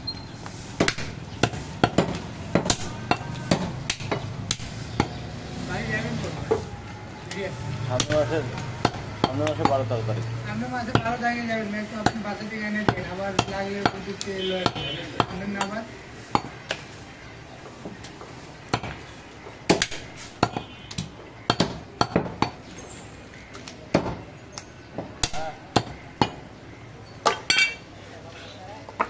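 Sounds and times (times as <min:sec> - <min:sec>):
cleaver chopping meat on wood: 0:00.8 - 0:05.2, 0:08.0 - 0:09.8, 0:10.9 - 0:11.2, 0:12.0 - 0:16.8, 0:19.7 - 0:22.6, 0:25.2 - 0:26.4.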